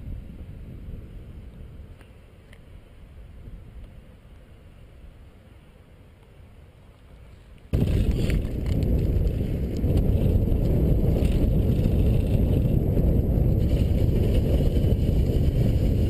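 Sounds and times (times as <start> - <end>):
wind buffeting microphone: 0.0 - 2.0, 7.7 - 16.0.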